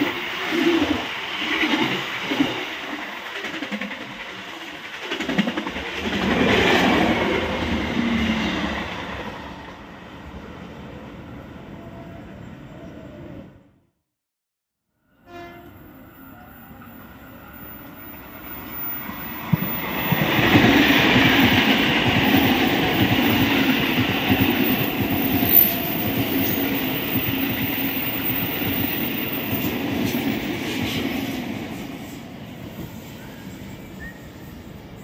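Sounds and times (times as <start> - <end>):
train passing at speed: 0.0 - 13.8, 15.0 - 35.0
faint train horn: 15.0 - 18.2.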